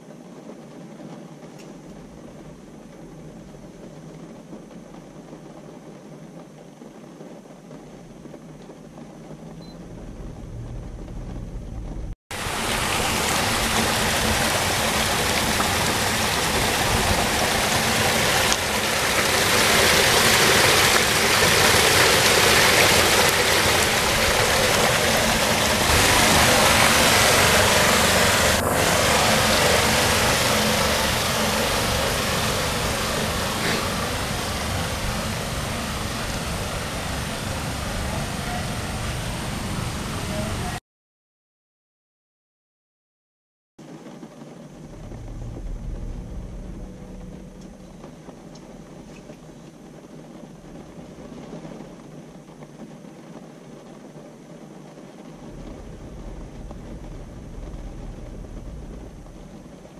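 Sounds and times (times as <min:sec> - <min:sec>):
water rushing down a drain: 0:09.9 - 0:40.8, 0:44.7 - 0:52.1, 0:55.4 - 0:59.9.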